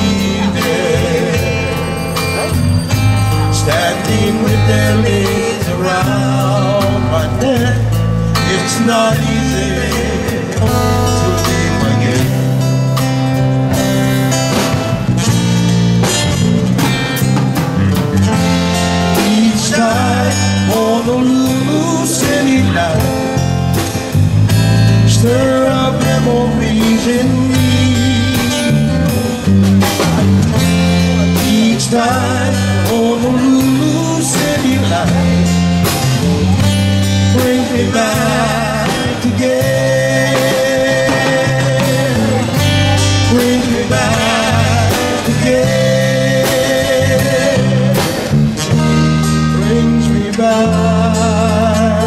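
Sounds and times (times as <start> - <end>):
acoustic guitar: 0.0 - 52.0
bass guitar: 0.0 - 52.0
drums: 0.0 - 52.0
man singing with vibrato: 0.0 - 52.0.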